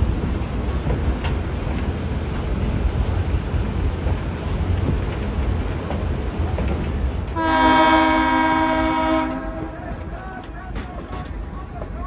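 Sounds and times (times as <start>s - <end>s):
train wheels rumbling on rail: 0.0s - 12.0s
locomotive air horn blast: 7.4s - 9.8s.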